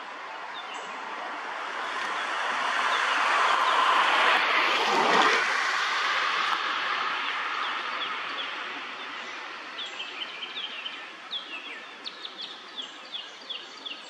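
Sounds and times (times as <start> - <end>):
small songbirds chirping: 7.2 - 14.0.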